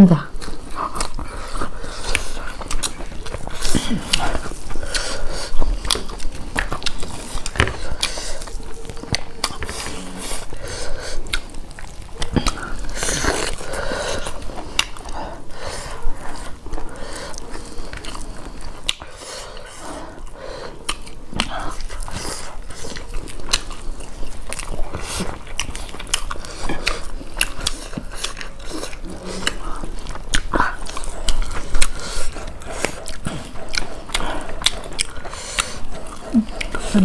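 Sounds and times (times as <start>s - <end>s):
wet chewing and lip smacks: 0.3s - 37.0s.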